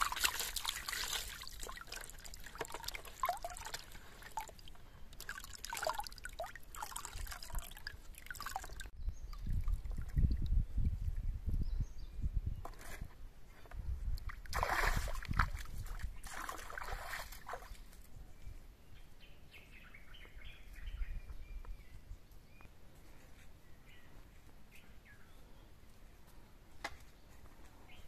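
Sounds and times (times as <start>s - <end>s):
water splashing: 0.0s - 8.9s, 14.2s - 17.9s.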